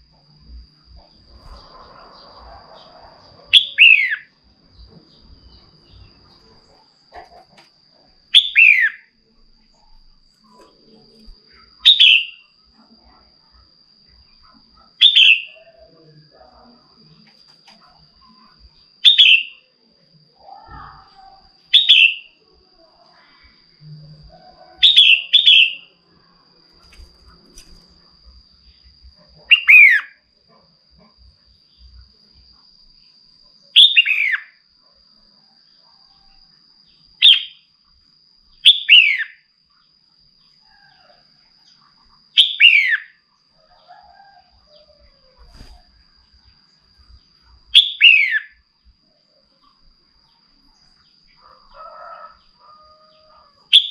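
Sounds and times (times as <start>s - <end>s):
bulbul calling: 3.5s - 4.3s, 29.5s - 30.1s, 47.8s - 48.5s.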